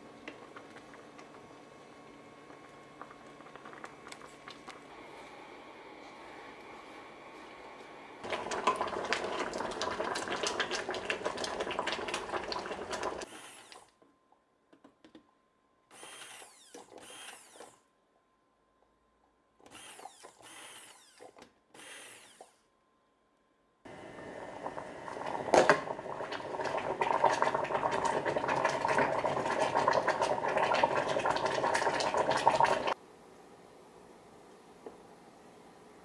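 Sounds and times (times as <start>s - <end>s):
immersion blender running: 13.2s - 13.9s, 15.9s - 17.8s, 19.7s - 22.6s.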